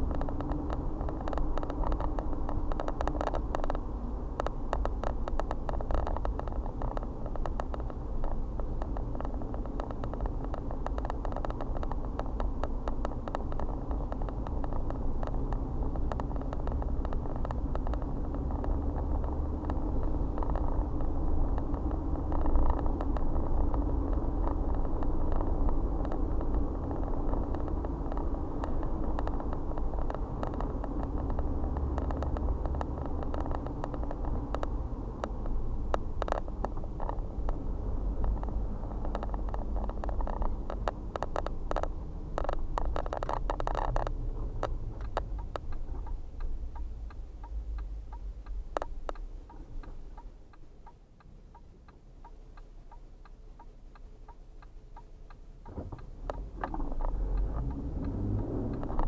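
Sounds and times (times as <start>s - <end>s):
car tyres and engine rumble: 0.0s - 59.0s.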